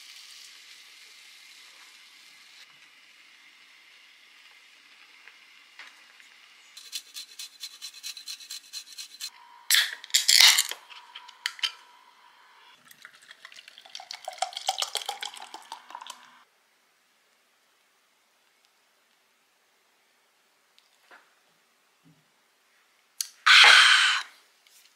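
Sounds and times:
beer can cracked open: 9.7 - 11.7
beer pouring and fizzing: 12.8 - 16.4.

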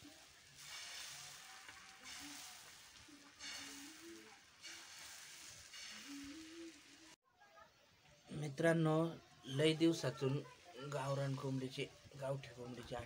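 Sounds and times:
egg sizzling on griddle: 0.0 - 7.2
metal spatula scraping: 0.0 - 7.2.

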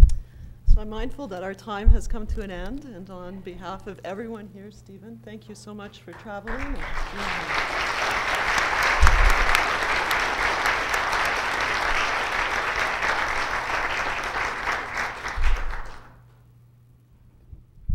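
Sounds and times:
audience applauding: 6.2 - 16.2.

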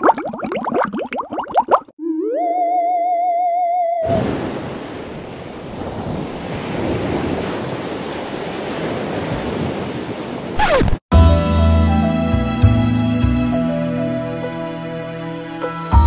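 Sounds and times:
ocean surf breaking: 4.1 - 10.7
music: 11.1 - 16.0.

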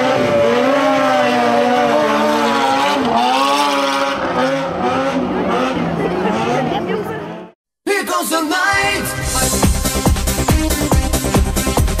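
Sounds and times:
motorcycle engine revving: 0.0 - 7.6.

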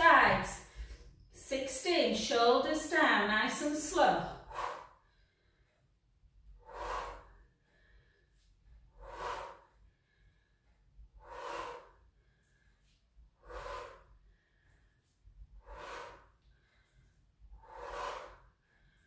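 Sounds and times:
woman breathing hard: 4.3 - 5.9, 6.5 - 19.0.

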